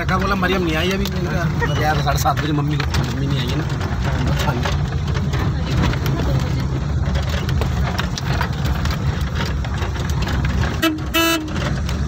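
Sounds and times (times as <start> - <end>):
vehicle engine rumble: 0.0 - 12.0
vehicle horn beeps: 10.8 - 11.6.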